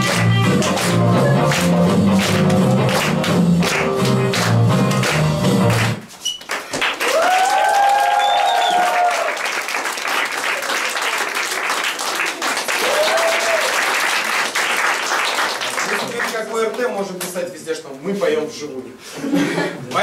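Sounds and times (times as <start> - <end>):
music: 0.0 - 6.1
audience applauding: 0.0 - 16.8
cheering whoops: 7.0 - 9.5, 12.8 - 13.9.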